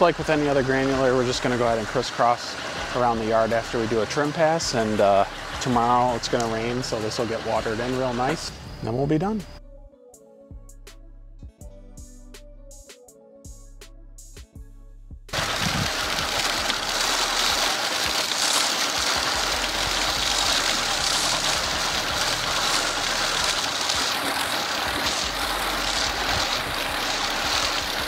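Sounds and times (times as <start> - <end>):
music: 0.0 - 17.4, 19.0 - 28.0
spreader rushing clatter: 15.4 - 28.0.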